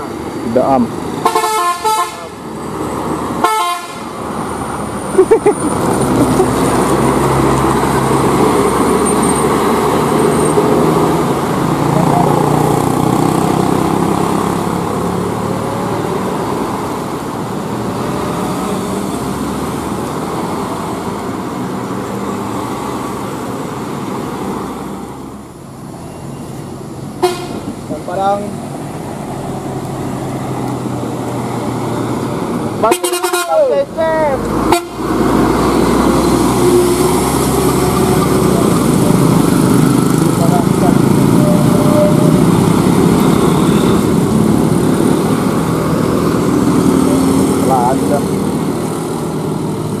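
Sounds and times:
bus diesel engine passing: 0.0s - 50.0s
bus horn toots: 1.2s - 2.3s, 3.4s - 4.1s, 27.2s - 27.7s, 32.8s - 33.7s, 34.7s - 35.2s, 41.4s - 42.4s.

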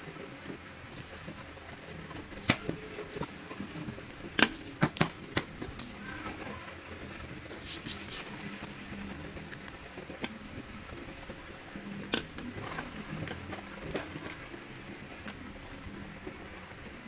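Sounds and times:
pens clicking on tabletop: 7.5s - 14.6s.

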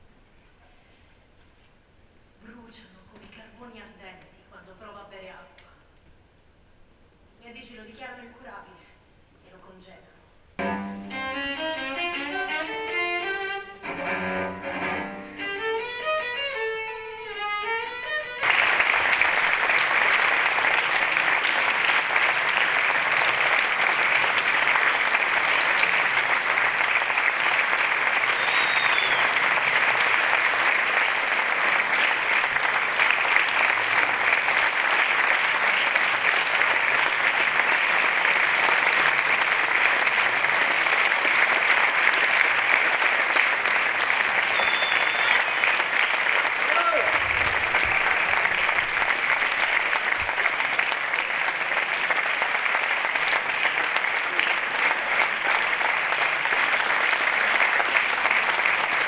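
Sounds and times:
instrumental music: 10.6s - 18.6s
audience applause: 11.6s - 59.0s.

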